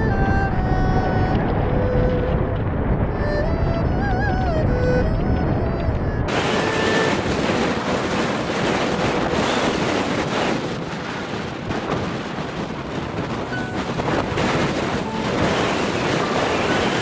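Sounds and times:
music: 0.0s - 7.2s
wind noise on microphone: 0.0s - 17.0s.

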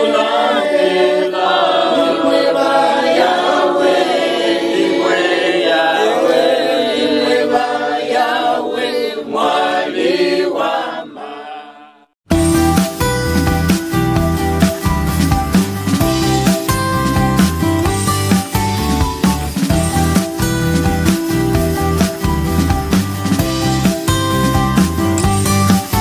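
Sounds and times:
group singing without instruments: 0.0s - 12.2s
background music with bass line: 12.3s - 26.0s.

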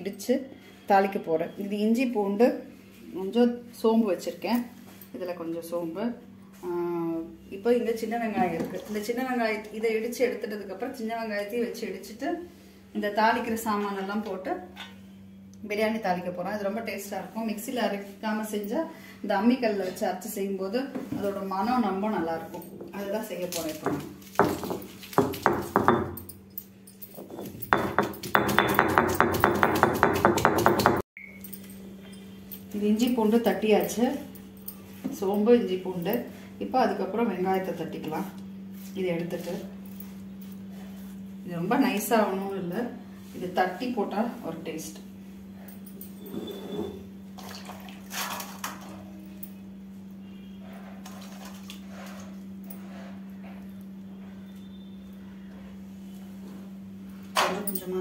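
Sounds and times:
stone pestle knocking on slab: 23.8s - 26.2s, 27.7s - 31.0s
water splashing in a steel bowl: 47.4s - 48.8s.

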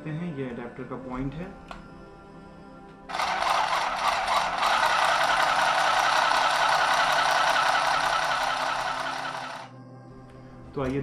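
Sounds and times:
sewing machine running: 3.1s - 9.7s.

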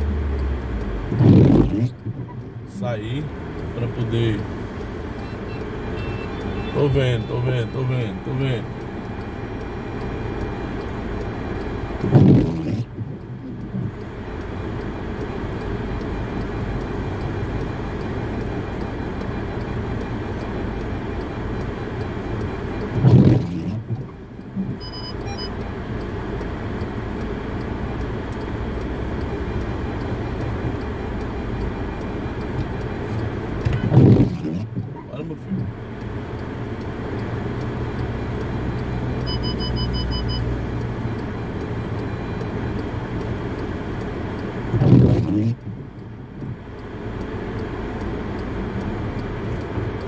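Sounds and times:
windshield wiper sweeping glass: 1.0s - 28.6s, 31.8s - 35.8s, 42.5s - 46.7s, 47.3s - 50.0s.

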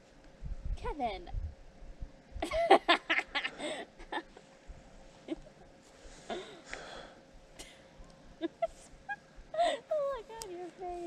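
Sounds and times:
person laughing breathily: 2.4s - 4.4s, 8.4s - 9.9s.

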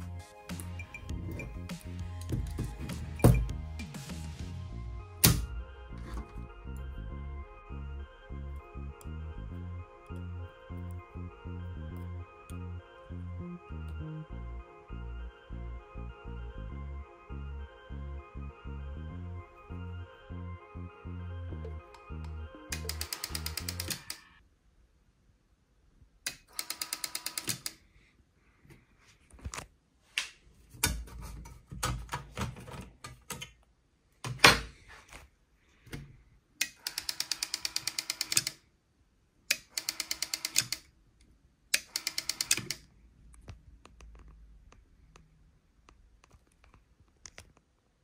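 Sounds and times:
handling noises and knocks: 0.6s - 4.0s.

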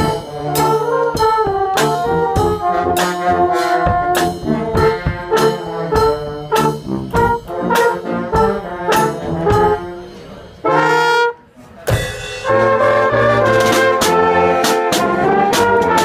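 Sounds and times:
bass drum and cymbal beat: 0.0s - 11.1s, 11.9s - 16.0s
brass band playing: 0.0s - 16.0s.

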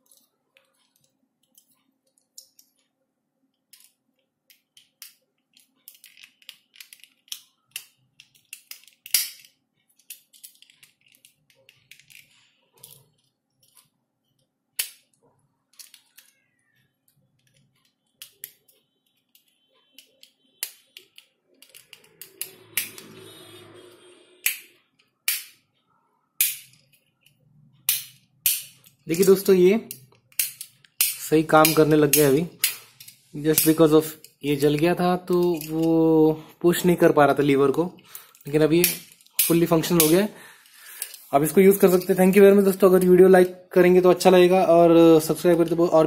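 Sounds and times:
plastic switch parts clicking: 3.7s - 13.0s, 14.8s - 23.2s, 26.4s - 36.1s.

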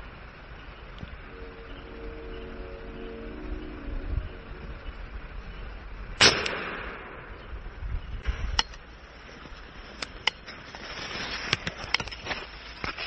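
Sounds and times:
air rifle shot: 6.2s - 7.4s
light rustling: 8.3s - 13.0s.

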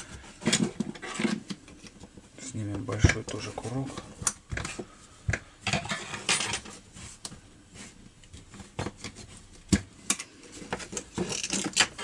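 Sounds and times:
plastic parts clicking: 10.1s - 12.0s.

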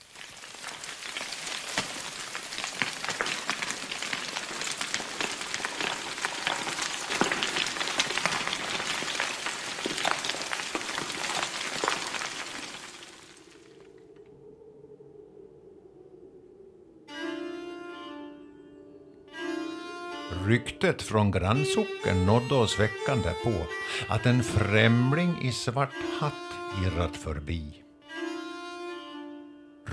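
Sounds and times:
stones clattering down a slope: 0.0s - 13.6s.

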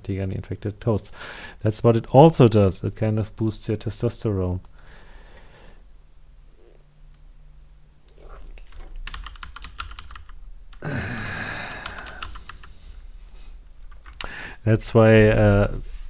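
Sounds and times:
computer keyboard typing: 8.6s - 10.8s, 11.8s - 12.8s, 13.8s - 14.2s
breathy rush of noise: 10.8s - 13.7s.

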